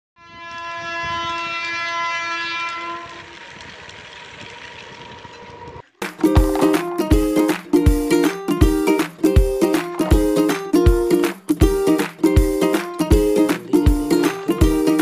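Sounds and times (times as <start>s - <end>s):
toy train electronic whistle: 0.2s - 3.2s
guitar music: 6.0s - 15.0s.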